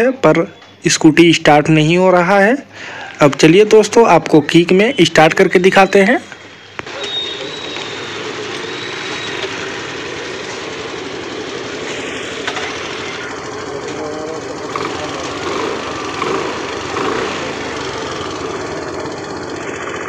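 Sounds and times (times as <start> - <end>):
scooter engine idling: 6.4 - 20.0.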